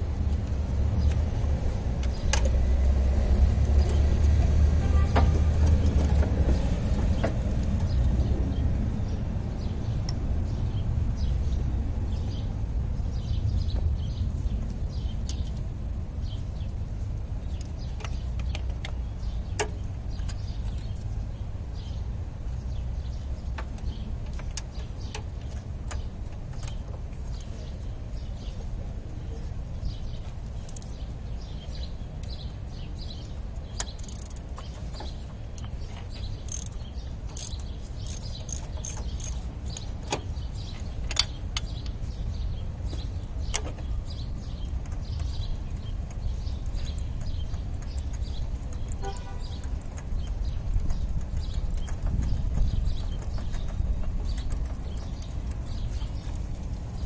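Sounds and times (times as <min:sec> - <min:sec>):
birds chirping: 0:00.1 - 0:57.0
metallic clicks of hand tools: 0:33.8 - 0:34.6, 0:36.4 - 0:40.2.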